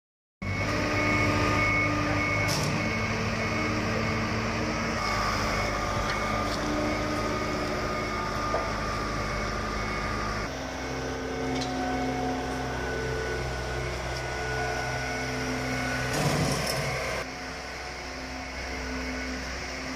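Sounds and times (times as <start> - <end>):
high warning beep: 0.4 - 10.5
machinery engine humming: 0.4 - 19.9.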